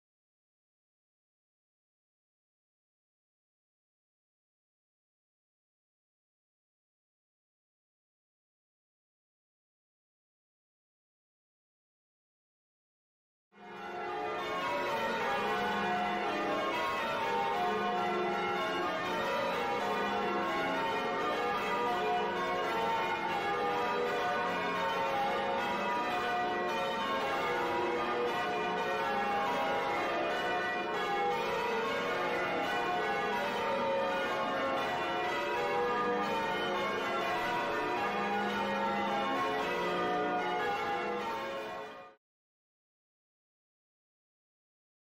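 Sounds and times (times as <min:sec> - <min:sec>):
church bells ringing: 0:13.6 - 0:42.2.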